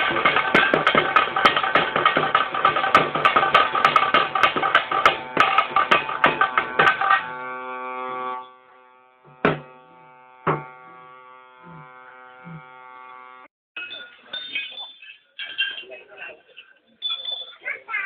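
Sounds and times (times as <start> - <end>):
fast drum strikes: 0.0 - 7.2
single drum beats: 0.0 - 7.2, 9.3 - 9.7, 10.4 - 10.8
droning note: 0.0 - 13.5.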